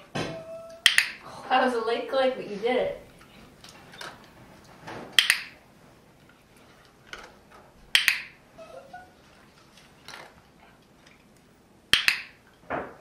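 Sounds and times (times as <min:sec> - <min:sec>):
clicker double clicks: 0:07.9 - 0:08.3, 0:11.9 - 0:12.3.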